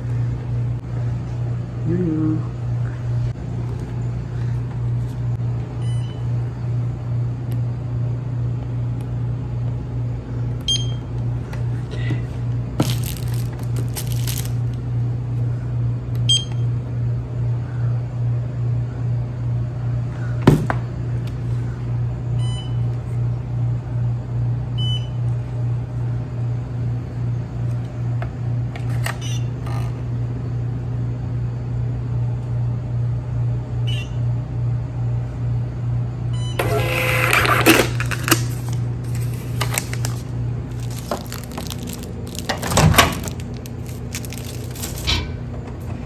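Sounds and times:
pulsing electrical hum: 0.0 - 46.0
wrapper crinkling: 12.8 - 14.8, 37.6 - 45.1
barcode scanner beeps: 16.3 - 16.7, 33.9 - 34.2.

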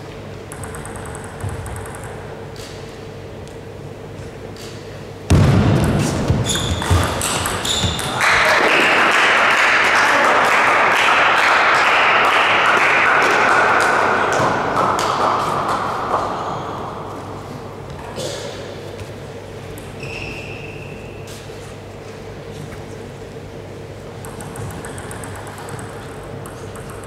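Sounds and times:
table tennis ball clicking: 0.5 - 2.8, 24.2 - 27.0
spectators cheering and applauding: 8.1 - 14.4.

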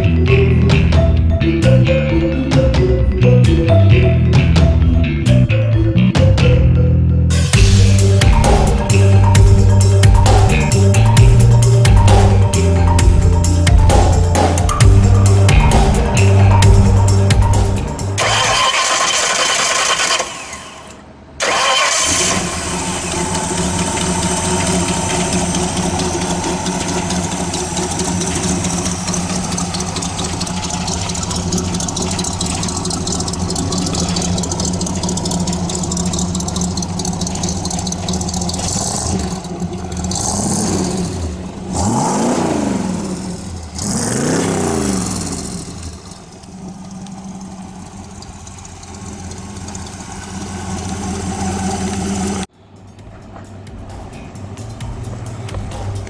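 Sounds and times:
hot rod engine revving and idling: 7.3 - 52.5.

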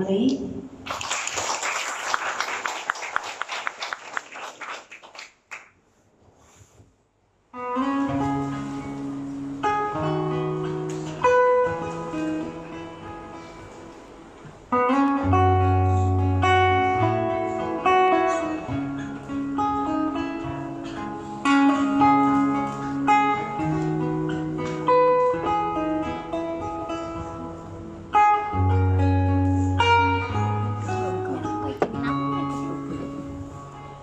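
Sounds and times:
guitar-led instrumental music: 7.5 - 34.0.

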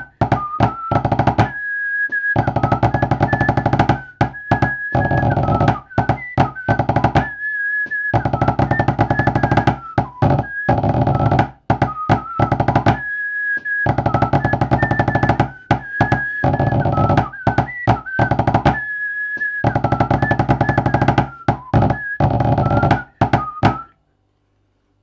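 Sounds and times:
drumsticks on practice board: 2.4 - 7.3, 8.2 - 13.0, 13.9 - 18.8, 19.7 - 23.9
thin melody: 13.9 - 18.8.

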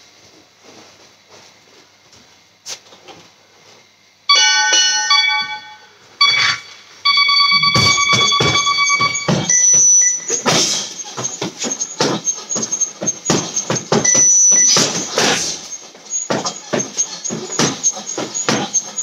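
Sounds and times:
electronic timer notes: 4.3 - 19.0
held electronic tone: 4.3 - 19.0
heavy thumps: 7.5 - 18.9.

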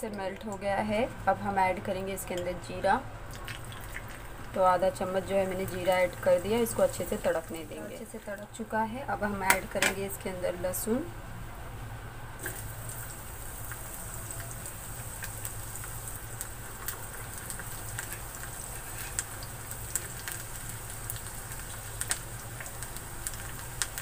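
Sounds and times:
garlic sizzling in hot oil: 2.2 - 8.7, 12.4 - 24.0
pops and crackles: 16.4 - 24.0.

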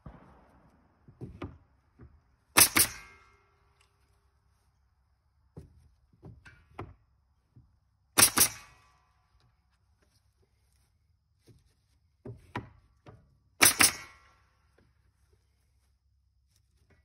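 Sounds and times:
nail gun firing: 2.6 - 3.3, 8.2 - 8.9, 13.6 - 14.4.

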